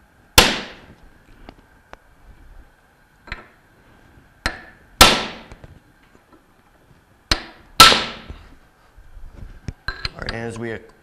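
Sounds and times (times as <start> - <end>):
hammer striking steel pipe: 0.4 - 0.8, 4.4 - 5.5, 7.3 - 8.3.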